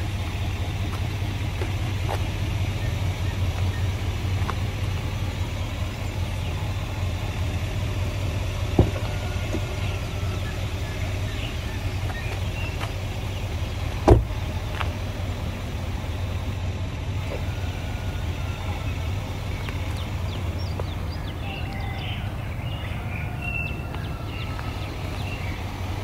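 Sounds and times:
truck door slamming: 0:08.7 - 0:09.8, 0:14.0 - 0:14.5.

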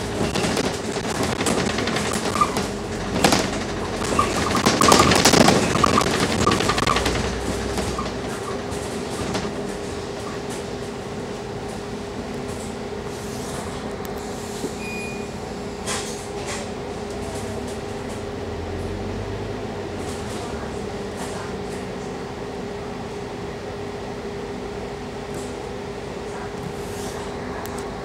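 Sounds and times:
bus fittings rattling: 0:00.0 - 0:10.0
bus drivetrain hum: 0:00.0 - 0:28.0
short high beep: 0:14.8 - 0:15.4.

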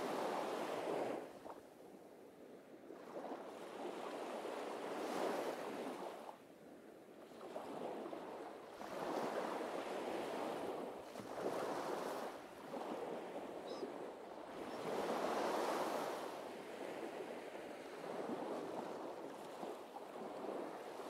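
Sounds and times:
waves breaking on sandy beach: 0:00.0 - 0:01.6, 0:02.9 - 0:06.4, 0:07.3 - 0:21.0.

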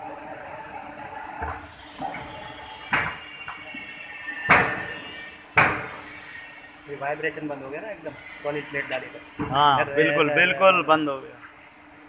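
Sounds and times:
steady machine noise: 0:00.0 - 0:12.0
pneumatic air bursts hissing: 0:01.4 - 0:09.8.

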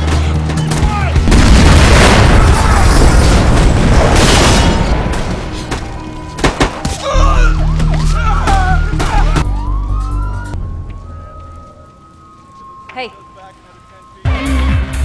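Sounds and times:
dramatic music: 0:00.0 - 0:13.3, 0:14.2 - 0:15.0
police sirens wailing: 0:05.7 - 0:14.9.

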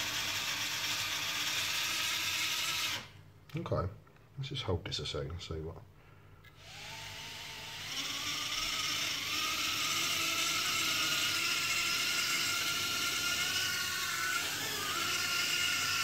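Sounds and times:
quadcopter motors whining: 0:06.6 - 0:16.0.

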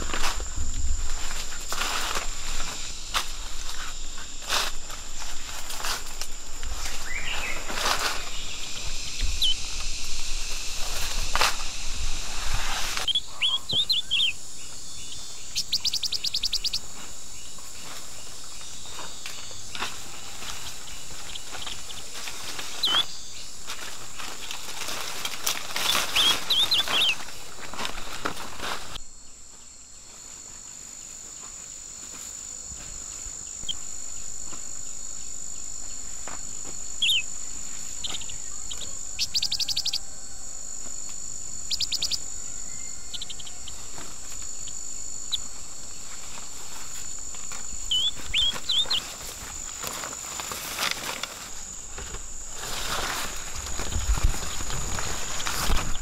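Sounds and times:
insects droning: 0:00.0 - 0:56.0
rustling in undergrowth: 0:00.0 - 0:56.0
bird chirps: 0:06.9 - 0:09.8, 0:13.1 - 0:16.9, 0:22.7 - 0:23.5, 0:25.8 - 0:27.2, 0:37.0 - 0:37.3, 0:41.7 - 0:43.8, 0:47.9 - 0:49.1.

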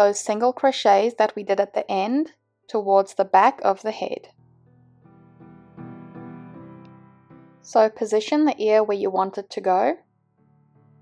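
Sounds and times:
keyboard melody: 0:04.3 - 0:07.8, 0:10.0 - 0:11.0.

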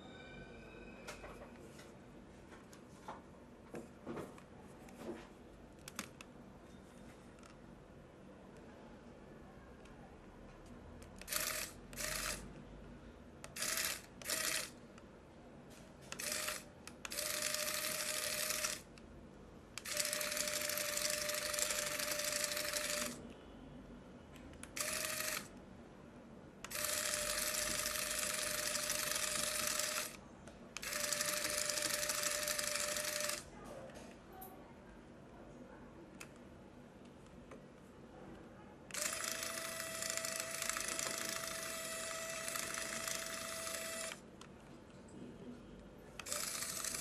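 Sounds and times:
toy motor and gears whirring: 0:11.2 - 0:12.4, 0:13.6 - 0:14.8, 0:16.1 - 0:18.9, 0:19.8 - 0:23.2, 0:24.8 - 0:25.5, 0:26.7 - 0:30.2, 0:30.8 - 0:33.4, 0:38.9 - 0:44.2, 0:46.2 - 0:47.0.

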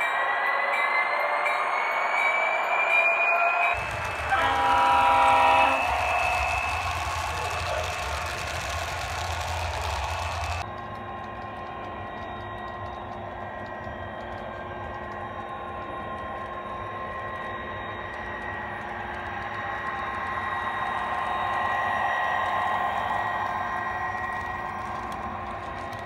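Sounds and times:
model diesel engine sound drone: 0:03.8 - 0:26.0.

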